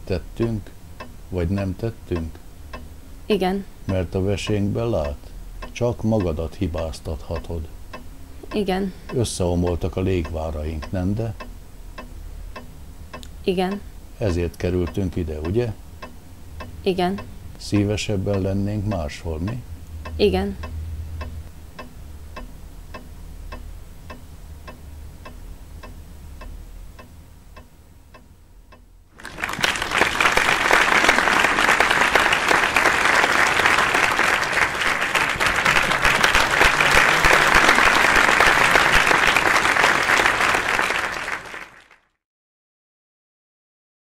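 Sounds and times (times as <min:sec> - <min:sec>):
clock ticking: 0:00.0 - 0:29.0
low hum: 0:00.0 - 0:40.3
audience applause: 0:29.2 - 0:42.1.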